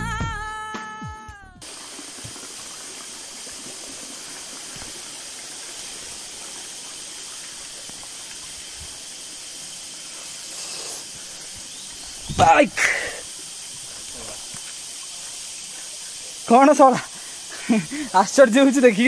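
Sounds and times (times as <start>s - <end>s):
background music: 0.0s - 1.6s
waterfall rushing: 1.6s - 19.0s.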